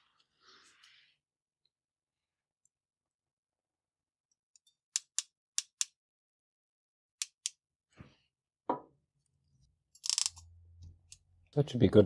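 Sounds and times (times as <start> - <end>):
ratcheting crimping tool clicking: 10.0 - 10.5.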